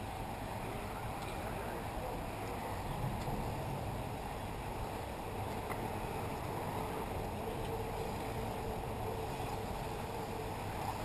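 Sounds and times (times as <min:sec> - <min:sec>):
wind on microphone: 0:00.0 - 0:11.0.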